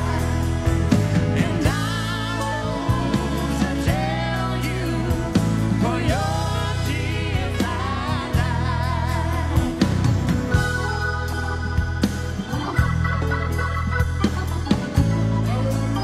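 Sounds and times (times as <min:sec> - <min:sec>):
woman singing gospel: 0:00.0 - 0:10.7
piano and organ accompaniment: 0:00.0 - 0:16.0.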